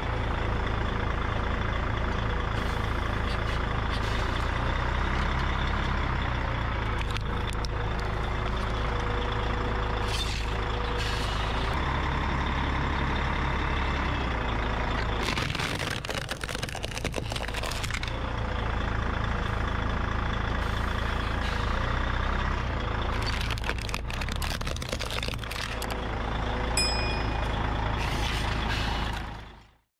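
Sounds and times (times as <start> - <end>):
truck engine running slowly: 0.0 - 29.9
air brakes hissing: 10.0 - 11.7, 20.6 - 22.0, 27.9 - 29.4
plastic cracking and snapping: 15.2 - 18.2, 23.2 - 26.0
short high chime: 26.8 - 27.6.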